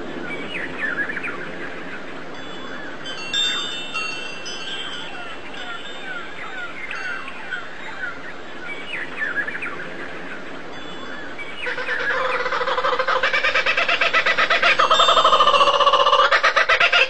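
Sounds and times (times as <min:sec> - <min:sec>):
harsh bird call with pulsing rattle: 0:11.6 - 0:17.0.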